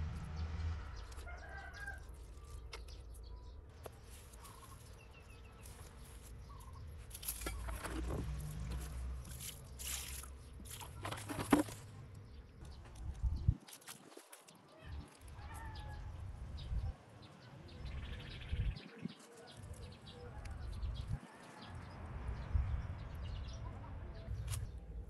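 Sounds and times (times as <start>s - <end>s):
soil and grass rustling: 0.0s - 16.8s.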